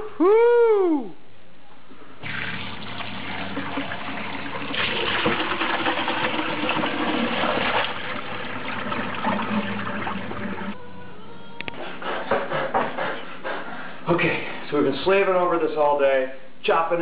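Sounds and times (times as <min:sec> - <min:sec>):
water pouring and splashing: 0:02.2 - 0:10.8.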